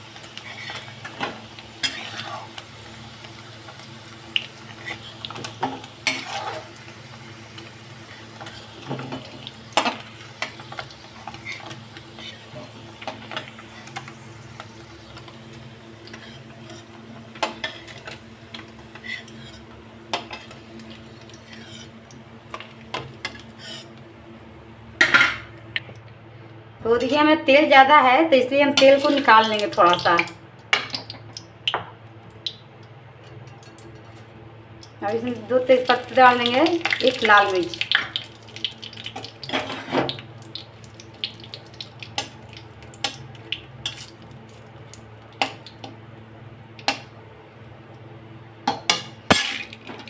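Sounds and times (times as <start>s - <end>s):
spices sizzling in oil: 0.0s - 24.0s, 33.6s - 46.0s
low steady hum: 0.0s - 50.0s
metal spatula scraping a pan: 6.0s - 6.7s, 21.4s - 21.9s, 23.2s - 23.9s.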